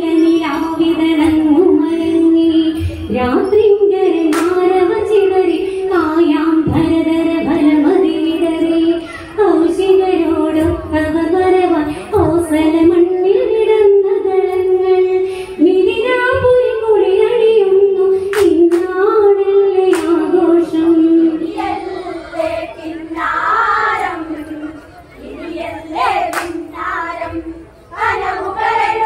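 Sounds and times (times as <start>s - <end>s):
women singing in unison: 0.0s - 29.0s
hand claps: 4.3s - 4.6s, 18.3s - 19.0s, 19.9s - 20.3s, 26.3s - 26.6s.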